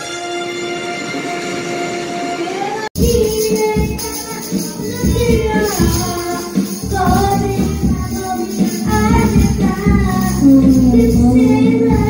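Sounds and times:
karaoke backing track: 0.0s - 12.0s
child singing: 2.6s - 12.0s
tambourine shaken: 3.0s - 12.0s.

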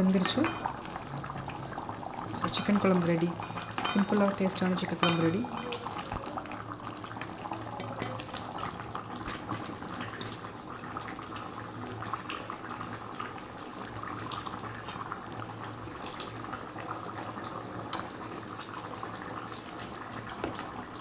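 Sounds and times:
ladle clinking on metal: 3.4s - 4.1s.

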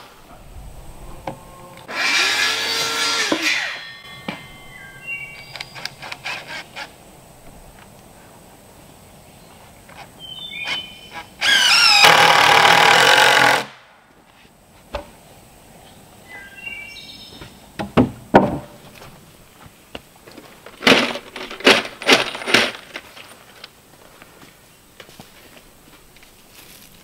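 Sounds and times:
short high squeaks: 2.0s - 6.9s
timber knocks and thuds: 17.8s - 18.8s.

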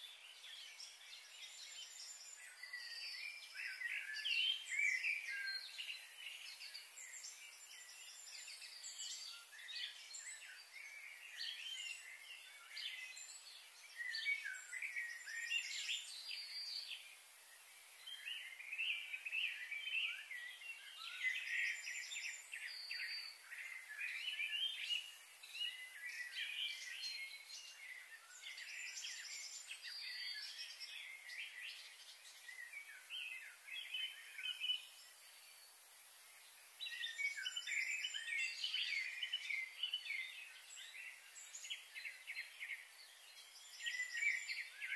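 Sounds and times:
birds chirping and trilling: 0.0s - 44.9s.

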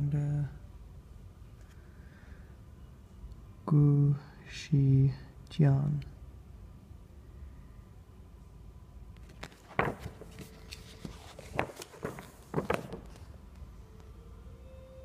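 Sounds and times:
paper rustling: 9.2s - 13.3s.

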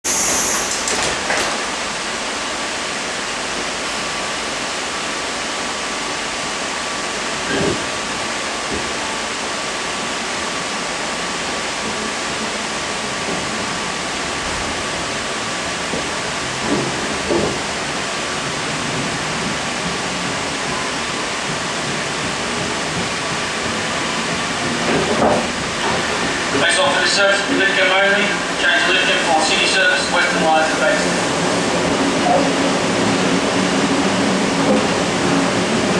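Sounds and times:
brief high hiss: 0.0s - 0.9s
train air-conditioning hiss and hum: 0.1s - 35.9s.

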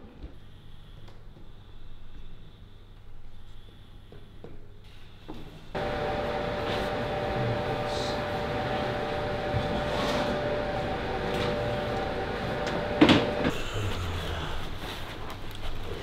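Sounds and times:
machinery humming: 5.8s - 15.2s.

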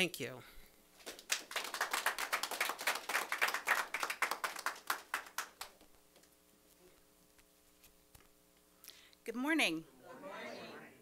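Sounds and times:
people clapping: 1.0s - 6.3s.

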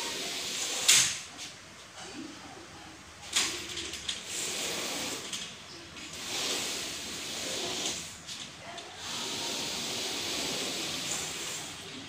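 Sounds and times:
mesh screen sliding in track: 4.2s - 5.5s, 6.1s - 8.2s, 9.0s - 12.0s.

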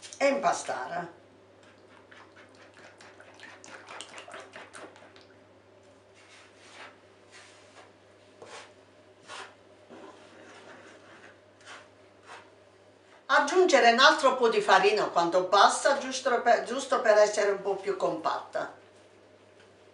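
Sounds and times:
fingers swishing in flour: 6.0s - 12.6s
fork scraping on wooden board: 6.2s - 12.5s.

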